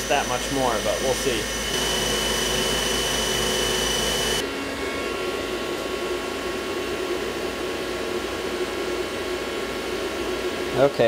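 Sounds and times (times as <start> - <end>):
high spindle whine: 0.0 - 5.6
low machine hum: 0.0 - 10.8.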